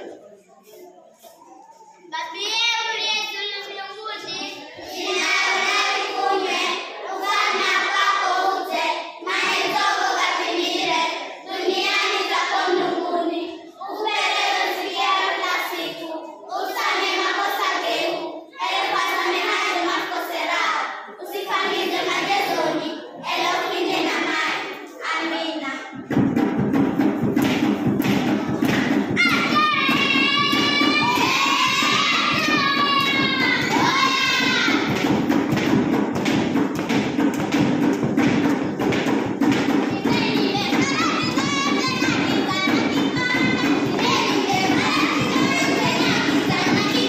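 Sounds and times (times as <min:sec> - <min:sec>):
children singing in unison: 0:04.2 - 0:47.0.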